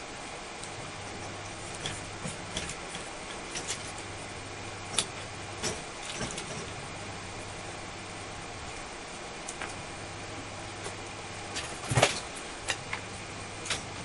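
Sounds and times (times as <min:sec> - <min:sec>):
steady hiss and low hum: 0:00.0 - 0:14.0.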